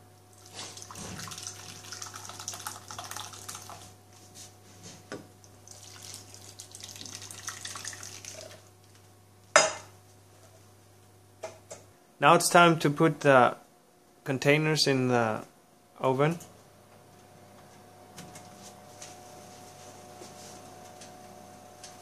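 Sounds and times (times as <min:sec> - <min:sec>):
liquid pouring and splashing: 0:00.3 - 0:04.0, 0:05.5 - 0:08.7.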